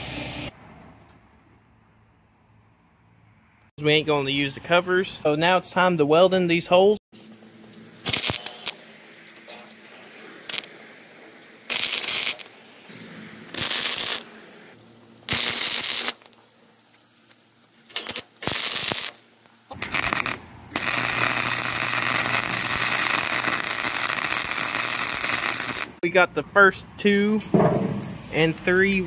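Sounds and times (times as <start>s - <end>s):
welder crackling: 8.0s - 9.5s, 10.2s - 10.8s, 11.6s - 26.0s, 27.0s - 29.0s.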